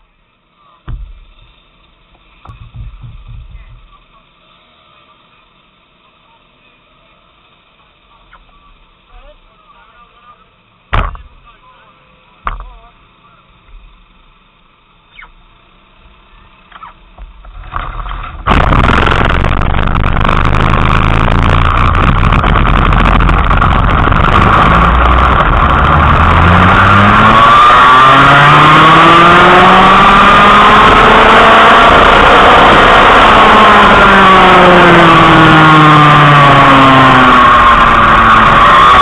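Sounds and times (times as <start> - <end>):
kart engine accelerating: 17.6 - 39.0.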